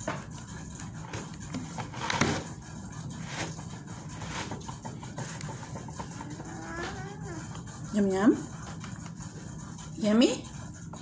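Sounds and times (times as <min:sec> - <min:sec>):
toddler chewing corn: 0:04.6 - 0:07.9.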